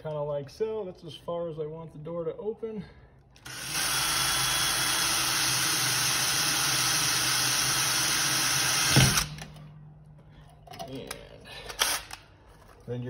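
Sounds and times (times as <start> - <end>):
cordless drill drilling metal: 3.4 - 9.6, 11.7 - 12.2.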